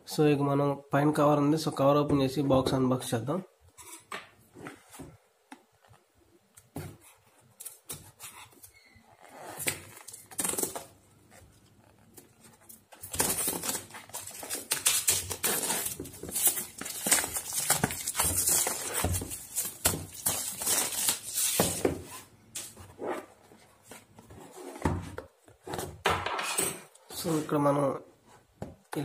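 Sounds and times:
plastic wrap tearing and crinkling: 9.4s - 11.0s, 12.2s - 22.8s
handling cardboard box: 9.6s - 25.8s.

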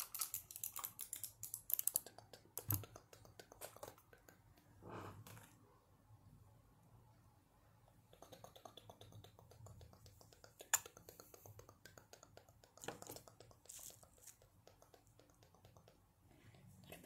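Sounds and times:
fingers clicking and tapping object: 8.1s - 16.1s.

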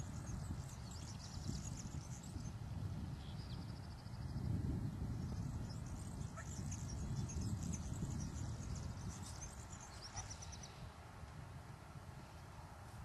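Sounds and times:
small birds chirping: 0.0s - 11.0s
bird trill: 6.2s - 10.8s.

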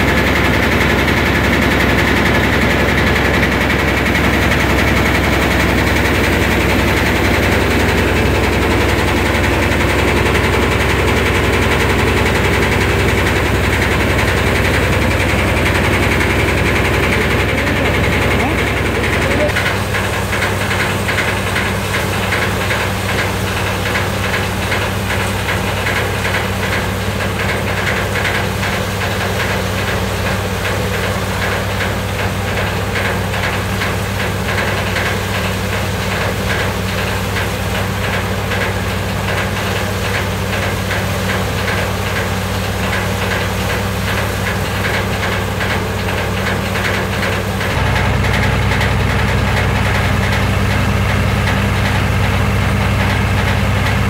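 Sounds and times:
thresher running with rattle: 0.0s - 54.0s.

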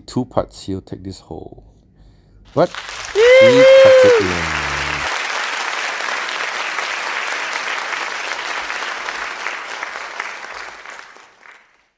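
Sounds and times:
crowd applauding: 2.6s - 11.9s.

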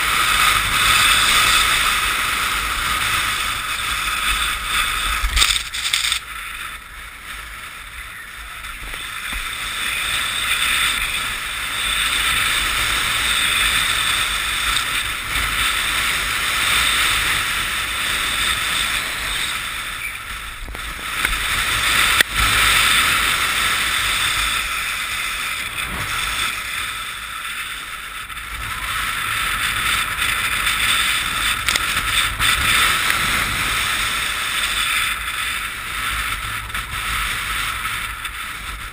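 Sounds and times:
skis hissing over snow: 0.0s - 28.1s.

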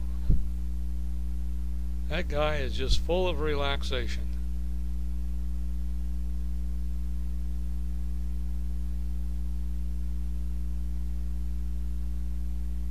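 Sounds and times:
electrical hum: 0.0s - 12.9s.

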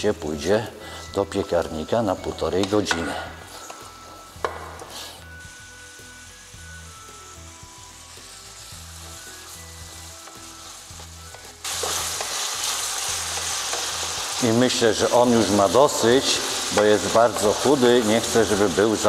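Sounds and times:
bacon sizzling in a pan: 1.6s - 19.0s
wooden spatula knocking on pan: 4.4s - 5.0s.

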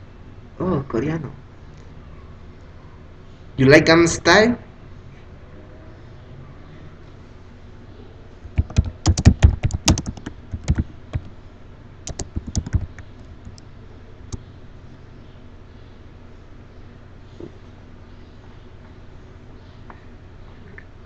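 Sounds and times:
typing on computer keyboard: 8.4s - 11.3s, 12.0s - 13.6s.

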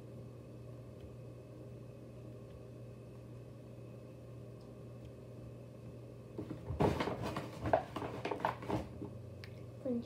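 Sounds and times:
steady low hum: 0.0s - 10.0s
objects rustling and knocking: 6.4s - 9.2s.

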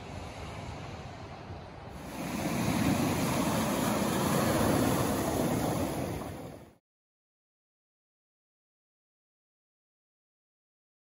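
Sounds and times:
water rushing: 2.0s - 6.8s.

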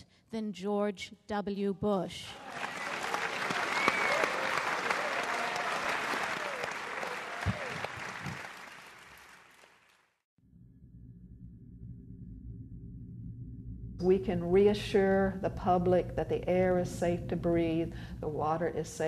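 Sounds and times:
audience applauding: 2.4s - 10.2s
low steady hum: 10.5s - 19.0s.

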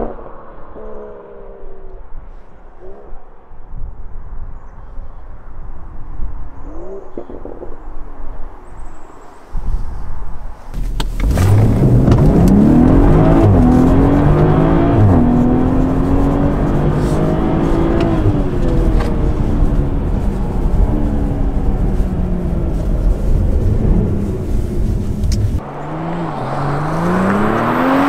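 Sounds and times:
car engine accelerating hard: 10.8s - 28.0s.

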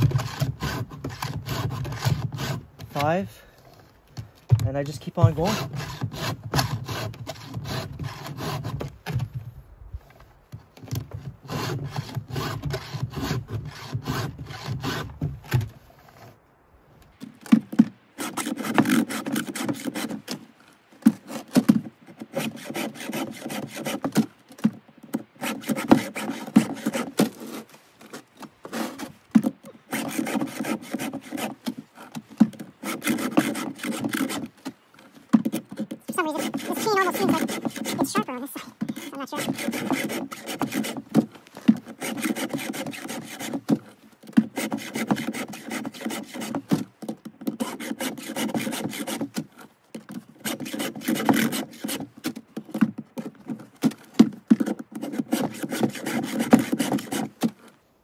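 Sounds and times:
file rasping on chainsaw chain: 0.0s - 3.3s, 4.8s - 8.9s, 11.4s - 15.1s, 18.2s - 20.3s, 21.2s - 24.3s, 25.4s - 49.7s, 50.4s - 52.1s, 53.9s - 57.5s.

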